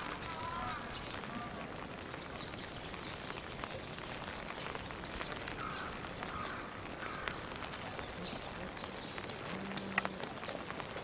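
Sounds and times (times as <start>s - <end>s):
outdoor background noise: 0.0s - 11.0s
faint ticks: 8.2s - 11.0s.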